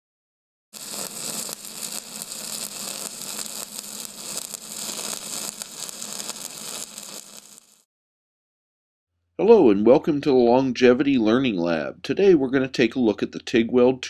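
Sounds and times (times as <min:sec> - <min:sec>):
steady crackling hiss: 0:00.8 - 0:07.8.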